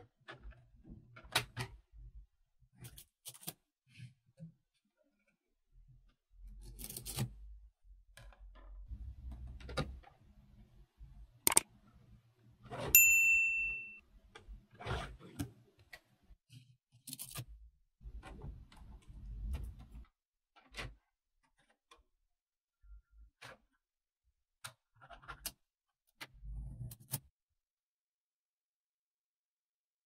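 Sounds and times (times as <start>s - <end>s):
bell-like ding: 13.0s - 14.0s.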